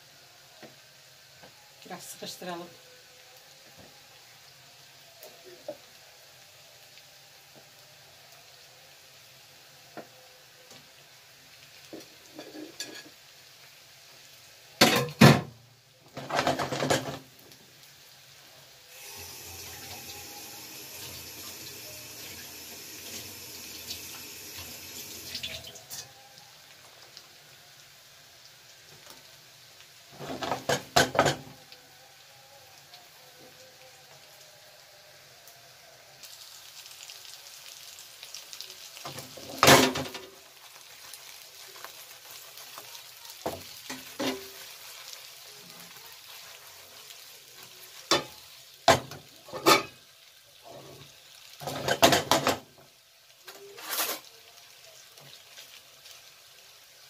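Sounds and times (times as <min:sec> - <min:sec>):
plates and utensils clattering: 0:12.3 - 0:13.2, 0:16.2 - 0:17.2, 0:48.9 - 0:50.0, 0:51.6 - 0:52.6
kitchen tap running: 0:18.9 - 0:26.0.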